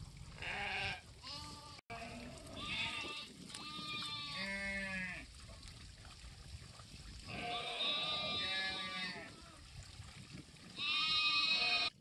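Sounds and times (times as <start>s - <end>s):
livestock bleating: 0.4s - 5.2s, 7.3s - 9.6s, 10.8s - 12.0s.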